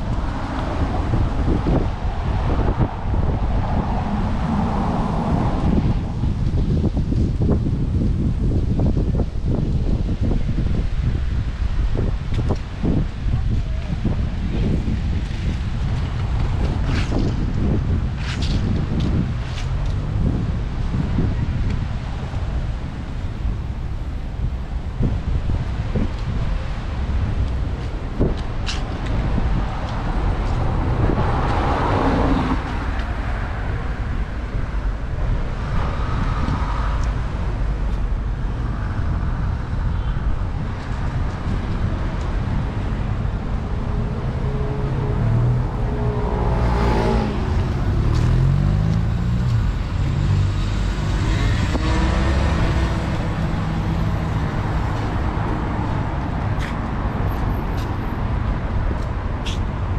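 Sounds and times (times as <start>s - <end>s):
city road traffic: 0.0s - 59.9s
vehicle accelerating: 42.5s - 58.0s.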